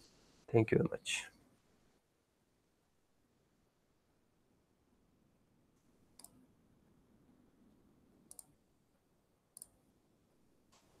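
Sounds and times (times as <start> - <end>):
faint sharp clicks: 5.8 - 6.4, 8.3 - 8.6, 9.6 - 9.8.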